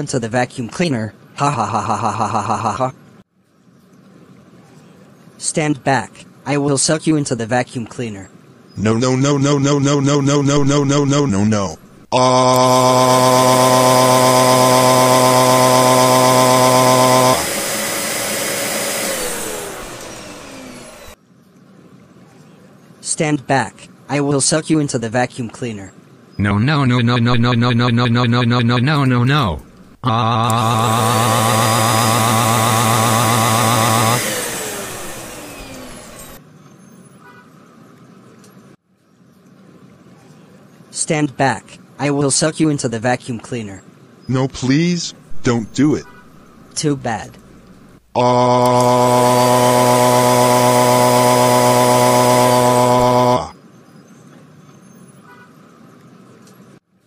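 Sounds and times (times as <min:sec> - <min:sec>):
motor winding down whine: 0:12.0 - 0:21.2, 0:29.7 - 0:36.4, 0:45.3 - 0:53.5
vacuum cleaner motor humming: 0:12.6 - 0:21.2, 0:30.1 - 0:36.4, 0:47.4 - 0:53.4.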